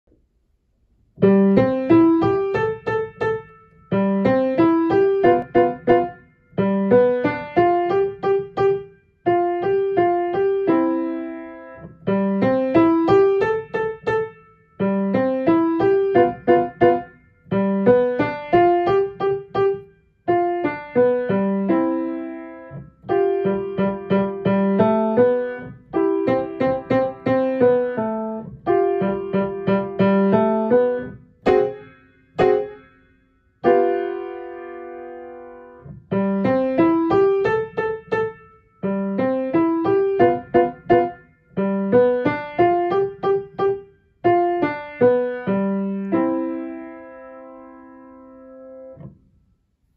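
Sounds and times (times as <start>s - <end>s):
lively piano piece: 1.2s - 49.4s.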